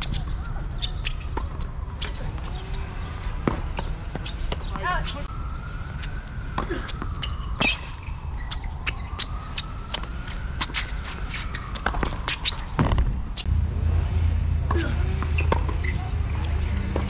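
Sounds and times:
tennis ball bouncing and struck: 0:03.3 - 0:04.9, 0:11.5 - 0:13.5, 0:14.7 - 0:17.0.

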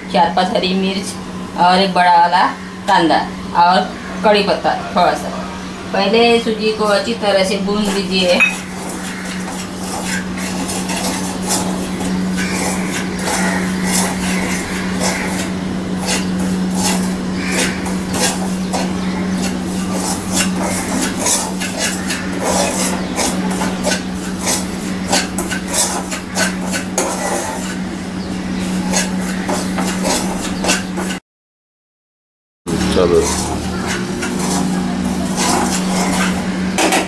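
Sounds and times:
spoon scraping metal pan: 0:06.8 - 0:27.8, 0:28.6 - 0:31.2, 0:32.8 - 0:37.0.

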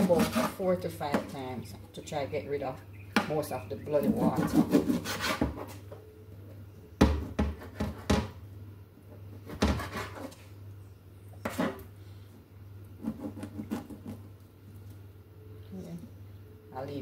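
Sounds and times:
steady low hum: 0:00.0 - 0:17.0
sharp knocks and clunks: 0:07.0 - 0:08.4.

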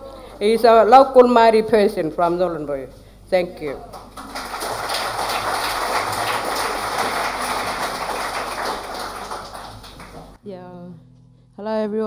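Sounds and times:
audience applauding: 0:03.9 - 0:10.4.

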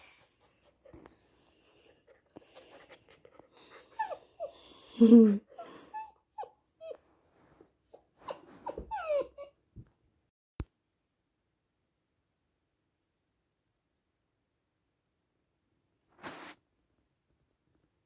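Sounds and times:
puppy whining: 0:02.4 - 0:09.6
puppy yelp: 0:07.8 - 0:09.5.

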